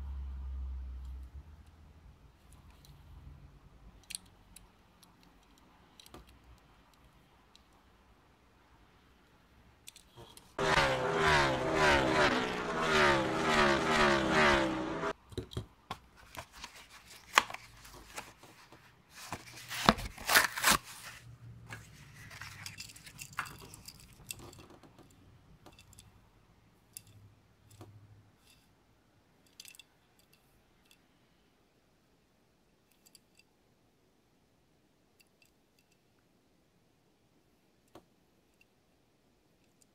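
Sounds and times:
cardboard tearing: 19.1 - 21.2.

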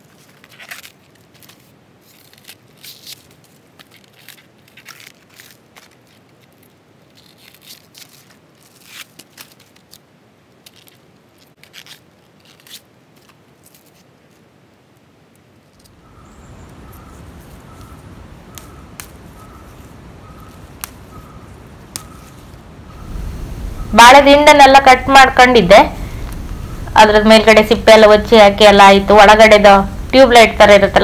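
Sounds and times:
banana stem cracking and tearing: 0.2 - 14.0, 17.6 - 21.2, 21.8 - 22.6
rumbling rustle: 15.8 - 24.0, 25.6 - 31.0.

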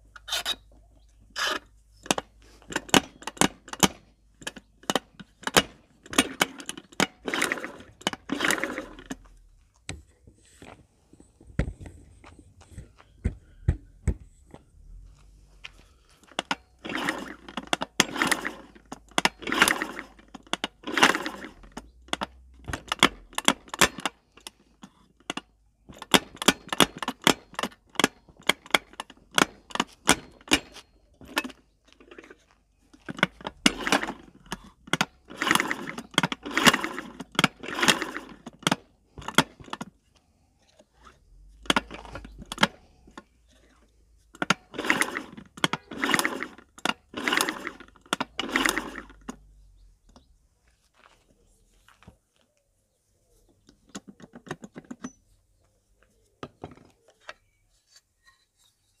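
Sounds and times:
scooter kick-start ratchet clicking: 0.1 - 0.6, 1.4 - 9.4, 16.2 - 32.4, 33.0 - 40.0, 41.5 - 43.8, 44.4 - 49.5.

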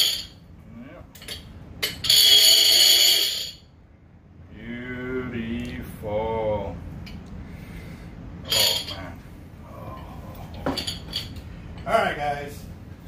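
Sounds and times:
man humming: 8.9 - 10.8.

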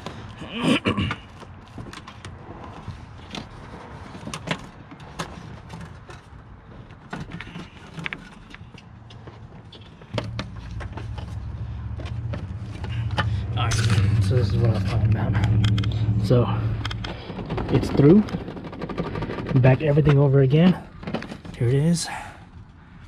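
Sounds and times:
hands handling wiring and plastic: 1.1 - 13.8
steady low hum: 9.8 - 23.0.

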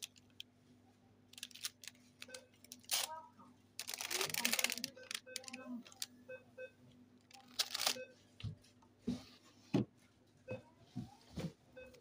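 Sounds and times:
plastic wrappers rustling: 1.3 - 3.2, 3.8 - 6.1, 7.3 - 8.0.

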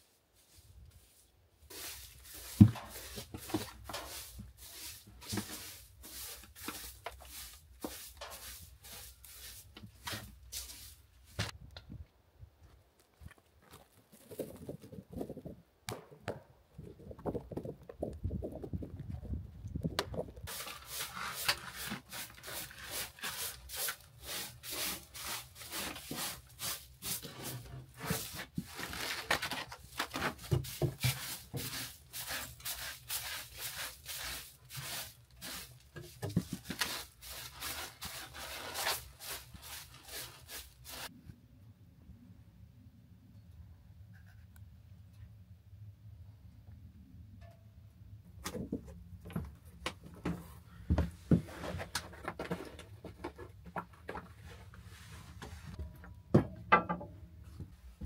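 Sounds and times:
broom sweeping wooden floor: 0.0 - 11.6, 20.5 - 41.1, 50.3 - 52.6, 54.4 - 55.9
scuffs and knocks: 36.0 - 41.1.

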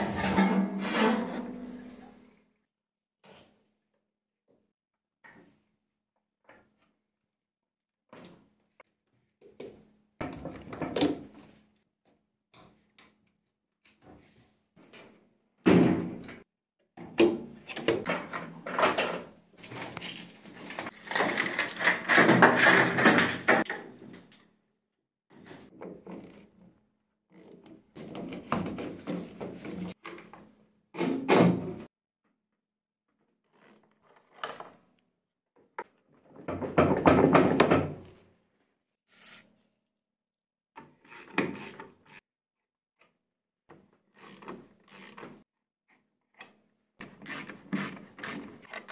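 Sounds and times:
plastic parts clunking and rattling: 9.4 - 11.5, 17.0 - 24.3, 35.6 - 38.1.

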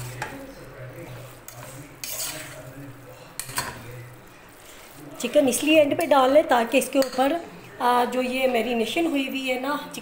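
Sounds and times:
spoon scraping steel pot: 1.0 - 4.0.

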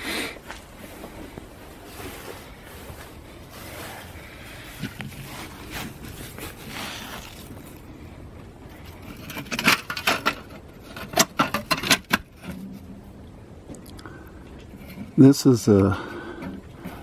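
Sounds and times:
hand scraping dried mud: 1.8 - 13.0.

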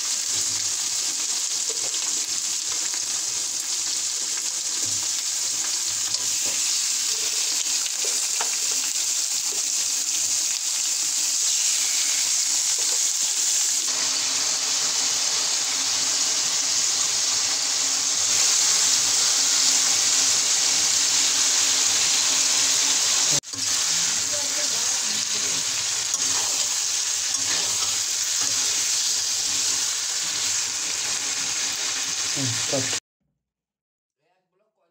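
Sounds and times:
chicken sizzling in hot oil: 0.0 - 33.0
spatula stirring in pan: 23.5 - 30.6.

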